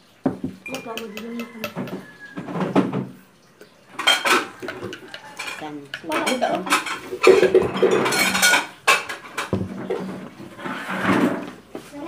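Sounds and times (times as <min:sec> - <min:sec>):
dishes and cutlery clattering: 0:00.3 - 0:03.1, 0:03.9 - 0:11.5
spoon clinking against glass mug: 0:00.6 - 0:02.3.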